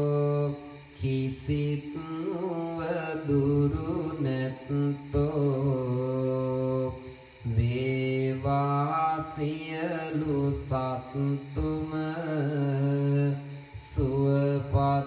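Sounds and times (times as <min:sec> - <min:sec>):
man chanting: 0:00.0 - 0:15.0
breaths: 0:07.0 - 0:07.6.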